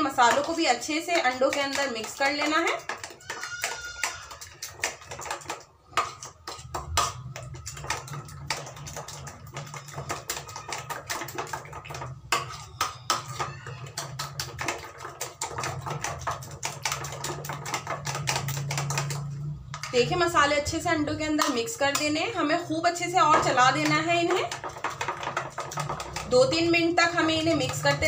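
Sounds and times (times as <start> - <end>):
utensil beating eggs in bowl: 0.0 - 28.0.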